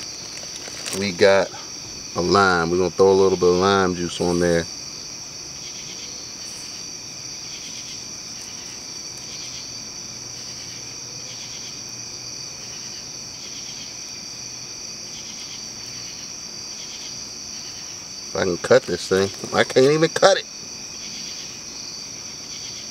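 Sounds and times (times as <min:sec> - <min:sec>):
insect high-pitched trill: 0:00.0 - 0:22.9
pulsed insect chirp: 0:00.0 - 0:22.9.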